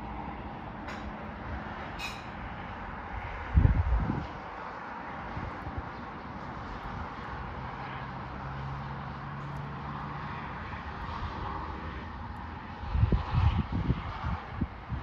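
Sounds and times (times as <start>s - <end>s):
distant city traffic hum: 0.0s - 15.0s
wind buffeting microphone: 3.0s - 7.5s, 11.0s - 15.0s.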